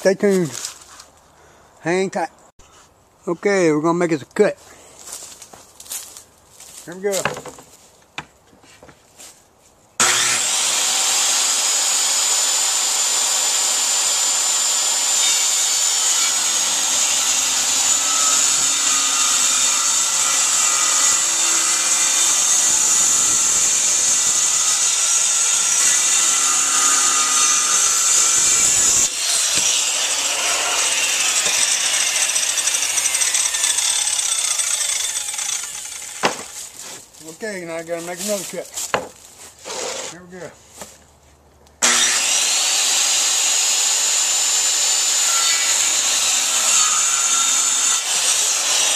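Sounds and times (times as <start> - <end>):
saw motor winding down: 10.0 - 20.6, 21.2 - 36.2
circular saw cutting plywood: 10.0 - 36.6, 41.8 - 48.9.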